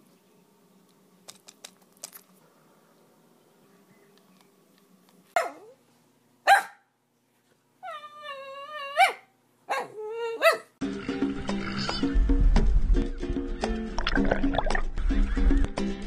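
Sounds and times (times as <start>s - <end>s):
dog barking: 5.4s - 5.8s, 6.5s - 6.9s, 9.0s - 10.8s
dog whine-howling: 7.8s - 9.2s
music: 10.8s - 16.0s.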